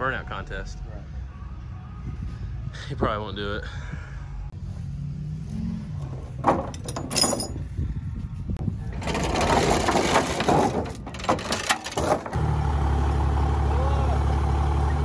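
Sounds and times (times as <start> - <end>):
sharp metal clanks: 6.0 - 7.6
chains rattling on wooden deck: 6.0 - 7.7, 8.9 - 12.4.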